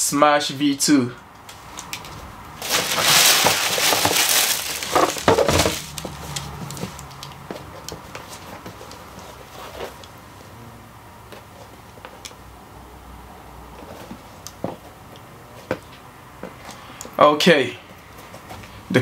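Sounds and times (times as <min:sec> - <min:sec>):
tissue paper rustling: 0:02.6 - 0:07.0.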